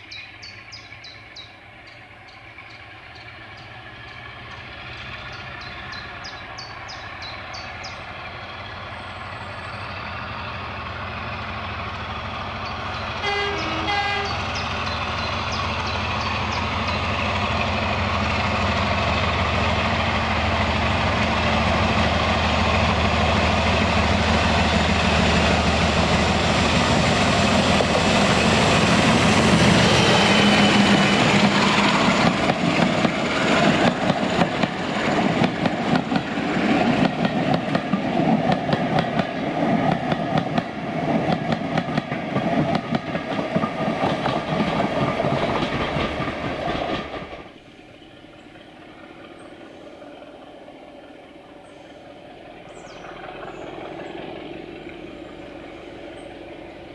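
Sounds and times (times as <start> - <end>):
diesel locomotive engine: 0.0 - 56.9
two-tone train horn: 13.2 - 14.6.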